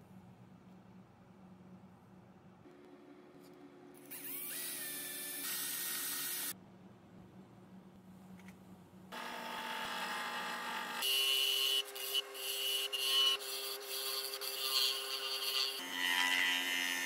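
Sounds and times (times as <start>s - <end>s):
wood lathe humming: 9.2s - 16.9s.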